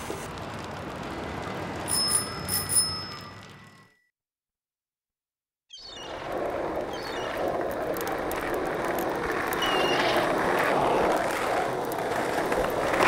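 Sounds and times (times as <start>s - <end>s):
skateboards rolling on pavement: 0.0s - 3.9s, 5.9s - 13.0s.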